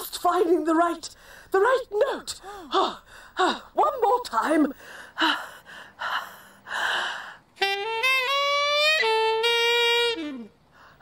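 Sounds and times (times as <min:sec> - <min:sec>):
loud breaths: 0:04.8 - 0:07.5
saxophone playing: 0:07.6 - 0:10.6.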